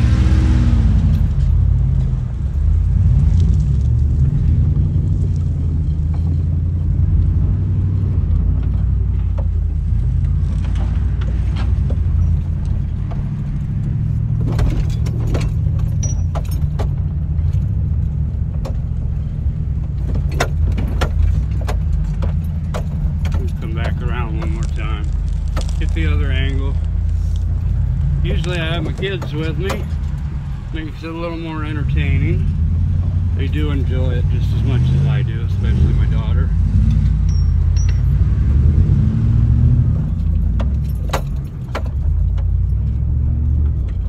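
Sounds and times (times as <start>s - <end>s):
engine rumbling under load: 0.0s - 44.0s
rattling and jingling clicks: 10.6s - 19.0s, 19.8s - 31.0s, 36.8s - 38.2s, 40.0s - 43.0s.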